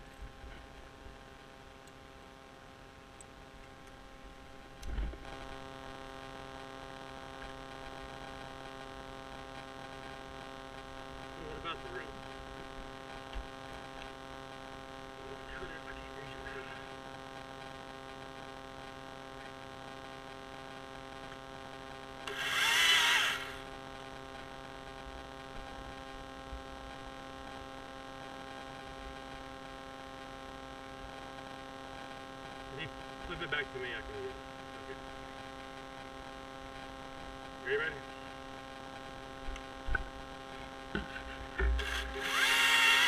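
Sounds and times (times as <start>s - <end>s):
steady hum: 0.0s - 43.0s
chainsaw running: 22.2s - 23.7s, 41.0s - 43.0s.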